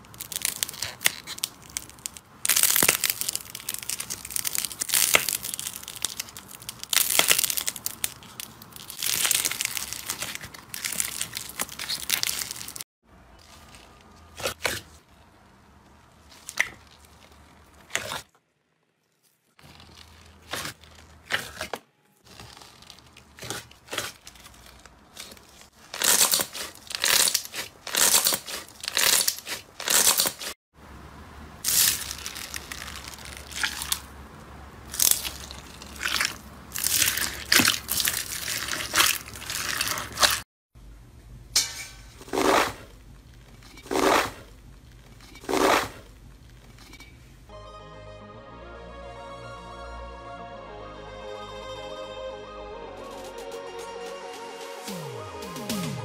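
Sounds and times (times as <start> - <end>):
slime tearing crackles: 0.0 - 12.8, 19.2 - 30.6, 31.6 - 34.1, 34.9 - 40.4.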